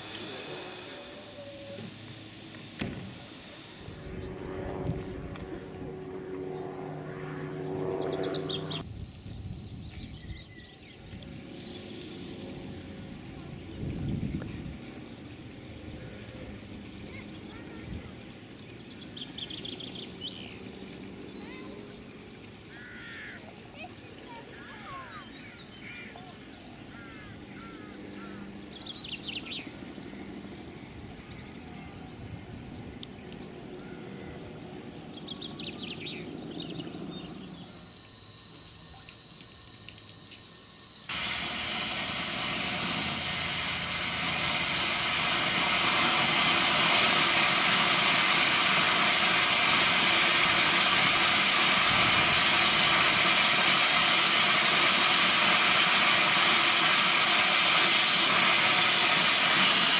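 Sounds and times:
steam hissing from locomotive: 0.0 - 4.3, 11.2 - 20.4, 41.0 - 59.9
bird calls: 13.1 - 38.1.

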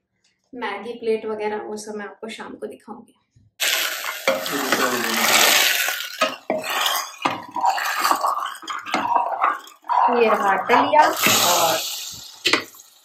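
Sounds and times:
ladle scraping in a pot: 3.6 - 12.8.

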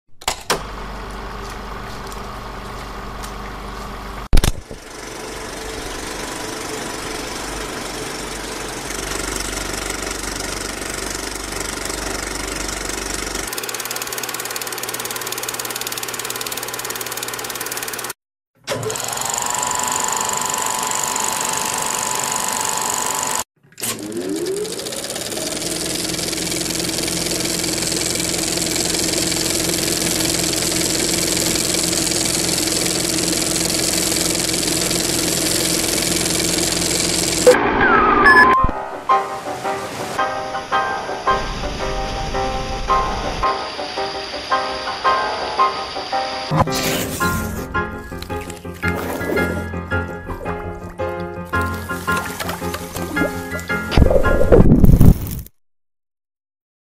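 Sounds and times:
motor whirring: 18.7 - 26.7.

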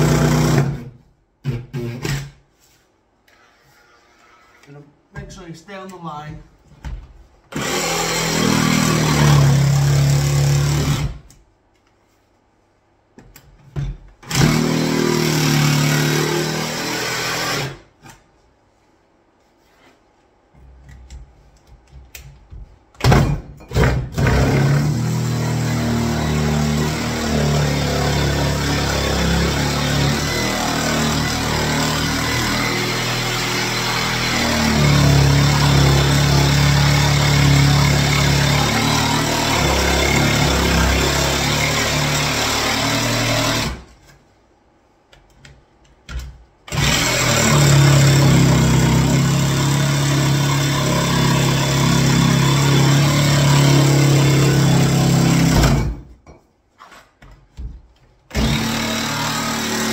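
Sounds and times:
jigsaw cutting worktop: 0.0 - 0.9, 7.5 - 11.3, 14.2 - 17.8, 23.8 - 43.9, 46.7 - 56.0, 58.3 - 59.9.

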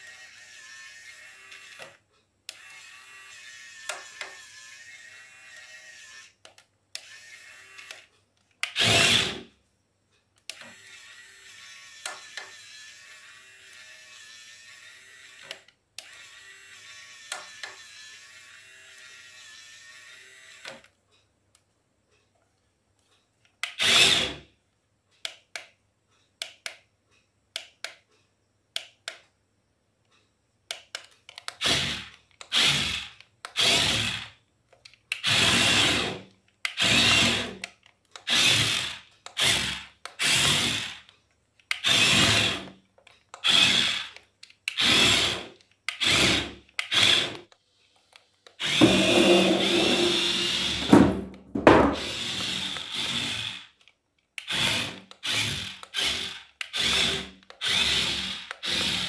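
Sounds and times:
toy truck motor whirring: 0.0 - 9.5, 10.5 - 20.9, 23.6 - 24.5, 31.4 - 34.4, 35.0 - 50.9, 52.0 - 59.0.

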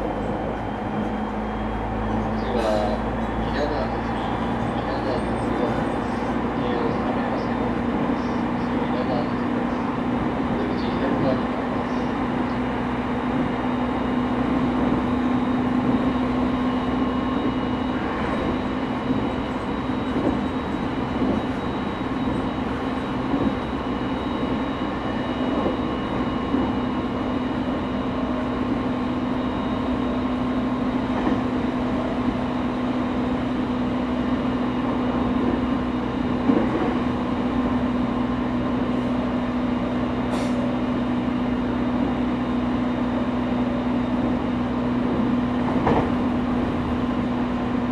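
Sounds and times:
train motors and wheels humming: 0.0 - 47.9
track knocks: 45.2 - 46.4.

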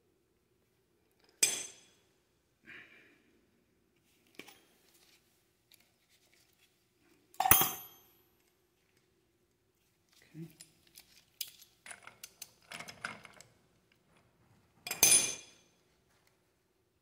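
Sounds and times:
metal tools clinking: 7.4 - 8.0, 14.8 - 15.6.

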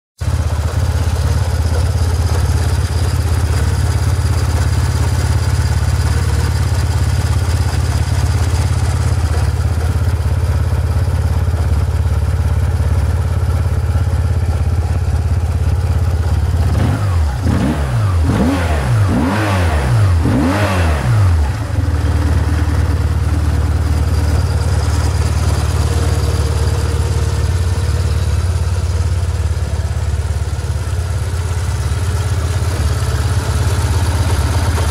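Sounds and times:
motorcycle engine idling: 0.2 - 34.9
engine throttle blips: 15.8 - 34.9.

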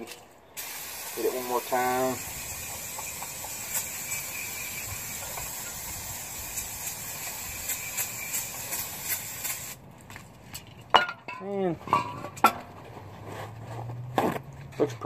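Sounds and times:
aerosol can spraying hiss: 0.6 - 9.8.

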